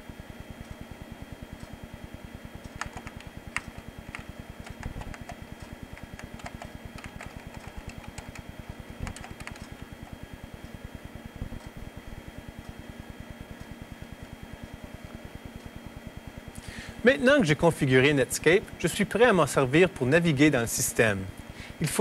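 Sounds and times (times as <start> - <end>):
computer keyboard typing: 2.7 - 9.9.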